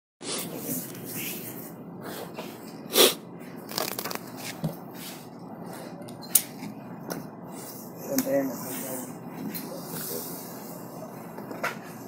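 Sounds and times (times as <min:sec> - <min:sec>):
paper rustling: 0:03.7 - 0:04.7.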